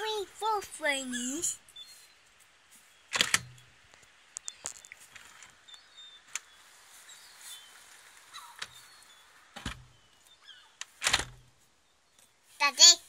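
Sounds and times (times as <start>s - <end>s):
faint bird chirps: 0.9s - 3.1s, 4.4s - 10.8s.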